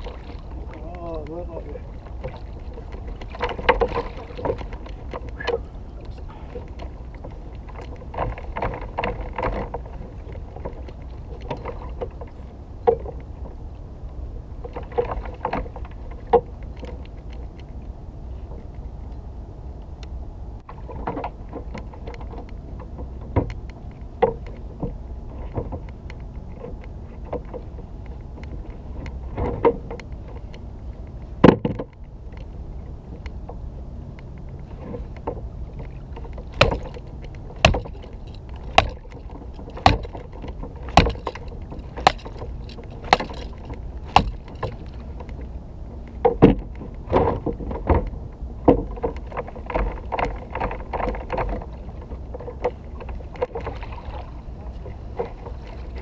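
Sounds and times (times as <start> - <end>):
low rumble of wind and water: 0.0 - 56.0
knocks and thuds on plastic kayak: 2.2 - 5.6, 20.8 - 23.6, 31.4 - 31.9, 36.3 - 44.9, 46.2 - 52.8.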